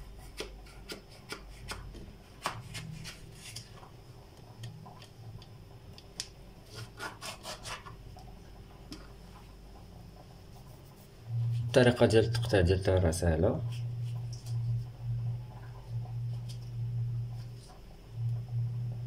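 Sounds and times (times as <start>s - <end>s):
knife cutting cucumber on board: 0.2s - 3.6s, 6.7s - 8.0s.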